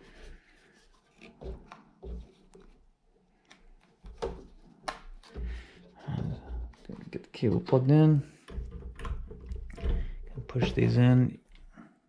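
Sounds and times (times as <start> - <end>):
light knocks and clicks on plastic: 1.2 - 2.8, 3.4 - 10.8.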